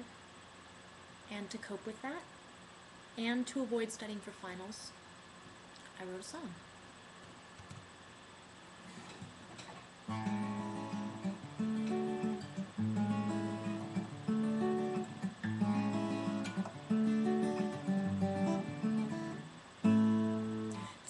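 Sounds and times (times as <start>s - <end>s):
acoustic guitar strumming: 10.1s - 21.0s.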